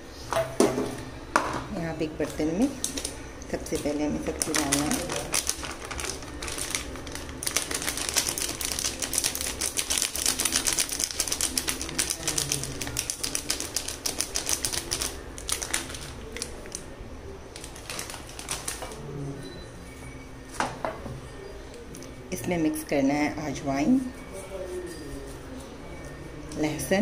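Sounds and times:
plastic packet crinkling: 3.8 - 16.9, 17.5 - 19.0.

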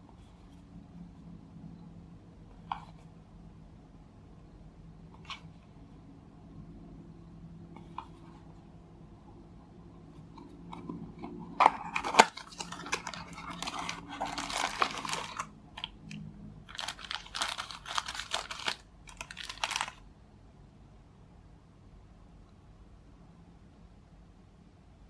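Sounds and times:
cardboard box handled and opened: 10.7 - 15.4
scissors cutting plastic: 11.6 - 16.0
plastic bag crinkling: 11.7 - 16.0, 16.6 - 20.0.

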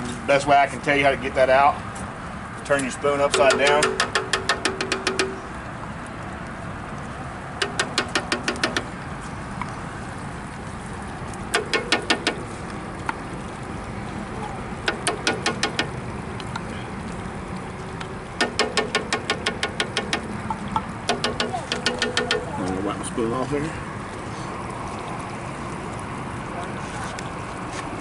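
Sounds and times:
steady background noise: 0.0 - 28.0
spoon knocking in tin can: 3.3 - 5.4, 7.6 - 8.9.

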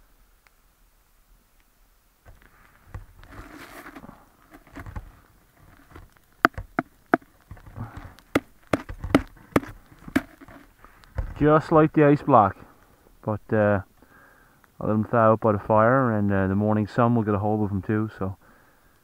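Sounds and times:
boot rustling and crunching: 2.3 - 11.6
sharp knocks on frozen boot: 5.8 - 11.4.

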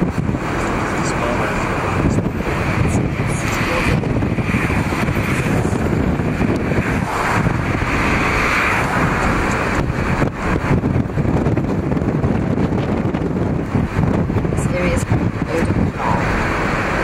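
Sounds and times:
car interior road noise: 0.0 - 17.0
oncoming car passing: 0.0 - 17.0.

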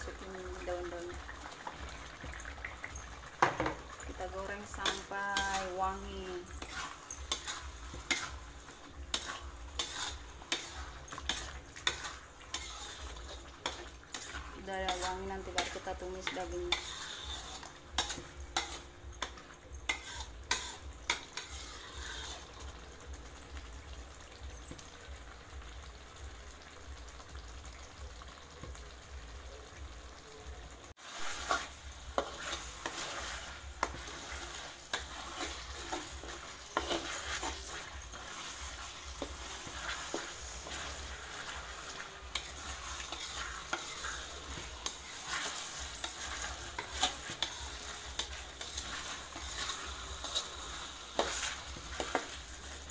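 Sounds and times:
paste sizzling in oil: 0.0 - 52.9
metal spatula scraping wok: 3.3 - 23.0, 31.0 - 52.9.

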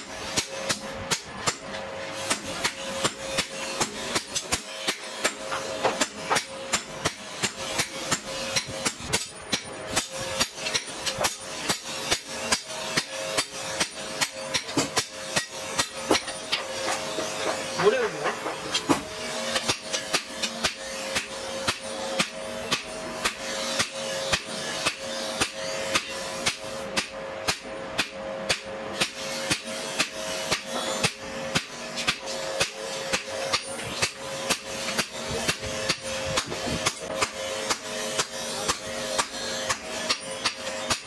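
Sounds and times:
hammer striking metal on anvil: 0.0 - 41.0
anvil ringing: 6.0 - 26.2.

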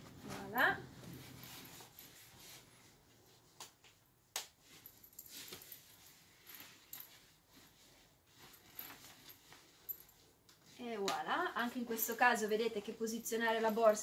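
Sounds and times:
fabric bag rustling: 0.0 - 3.0, 4.7 - 11.0.

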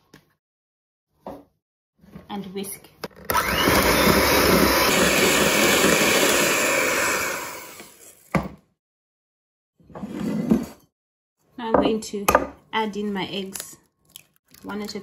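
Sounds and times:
electric hand mixer whisking: 3.3 - 8.2.

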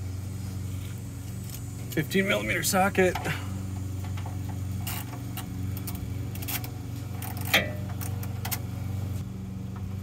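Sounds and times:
ratchet clicking: 3.1 - 8.7
metal clank: 4.0 - 8.6.

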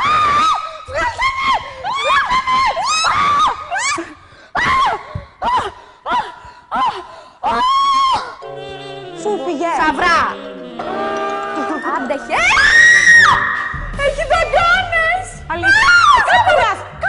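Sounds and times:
woman screaming shrieks: 0.0 - 5.7, 6.8 - 8.4, 12.4 - 13.6.

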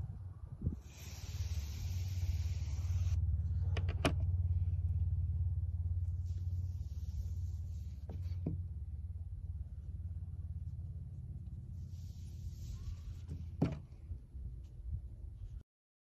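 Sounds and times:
steady low rumble: 0.0 - 15.6
knife scraping hiss: 0.8 - 3.2.

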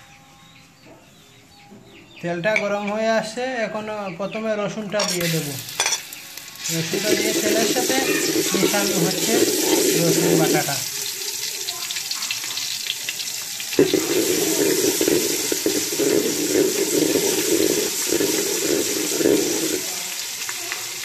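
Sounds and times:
garlic sizzling in hot oil: 5.0 - 21.0
spatula stirring in pot: 6.7 - 10.7, 13.8 - 19.9.

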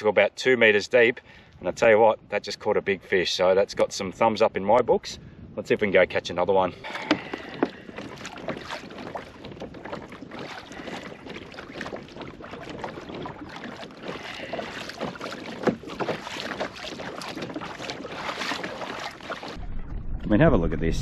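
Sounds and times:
wind buffeting microphone: 1.5 - 18.6
waves slapping against kayak hull: 5.6 - 19.7.

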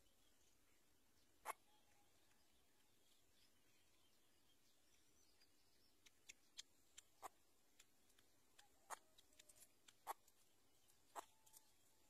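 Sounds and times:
faint sharp clicks: 4.9 - 11.8.

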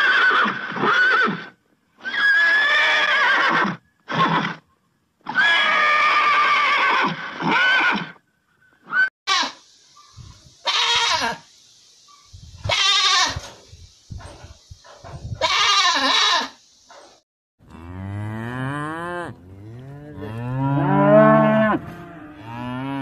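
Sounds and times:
goat bleating: 9.3 - 9.6, 10.6 - 11.4, 12.7 - 13.4, 15.4 - 16.6
cow mooing: 17.7 - 23.0.

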